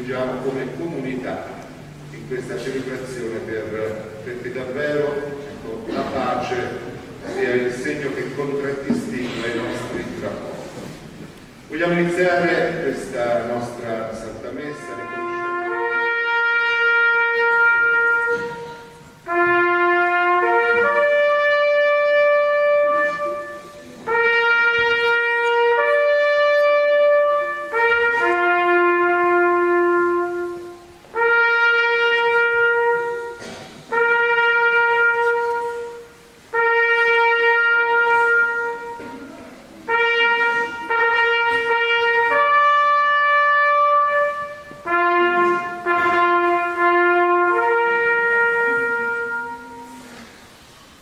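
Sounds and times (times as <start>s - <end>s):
solo trumpet playing: 11.1s - 50.7s.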